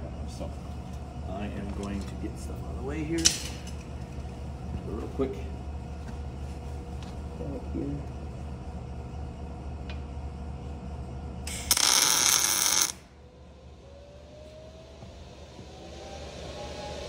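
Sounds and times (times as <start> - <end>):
welding arc crackling: 11.4 - 13.0.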